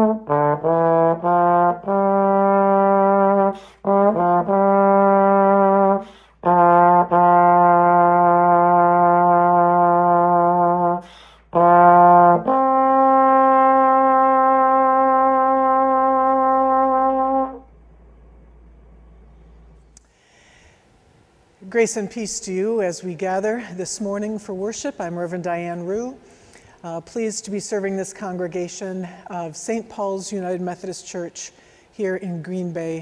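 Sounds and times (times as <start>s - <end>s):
trombone playing sustained notes: 0.0s - 19.9s
player breathing: 6.0s - 6.4s, 11.0s - 11.5s, 20.0s - 21.0s, 26.2s - 26.8s, 31.6s - 31.9s.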